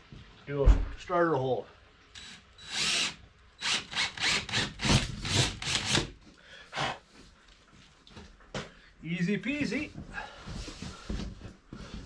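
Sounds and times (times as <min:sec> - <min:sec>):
drill bit rasping through wood: 0:02.2 - 0:06.1.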